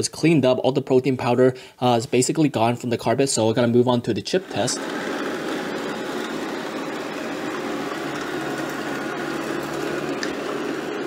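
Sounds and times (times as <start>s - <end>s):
robot vacuum whirring: 4.4s - 11.0s.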